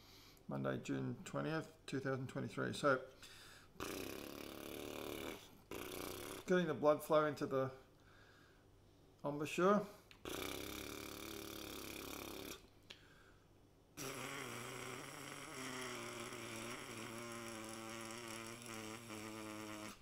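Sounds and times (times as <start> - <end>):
trumpet mouthpiece buzzing: 10.2 - 12.6, 14.0 - 20.0.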